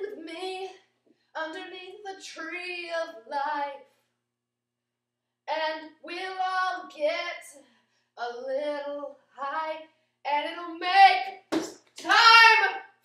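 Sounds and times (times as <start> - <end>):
woman singing wordless phrases: 1.4 - 3.8, 12.0 - 12.8.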